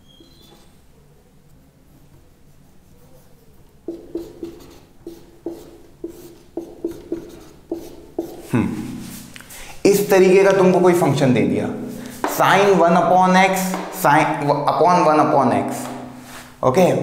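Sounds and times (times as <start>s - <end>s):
marker squeaking on whiteboard: 0.0s - 0.9s, 2.1s - 8.5s.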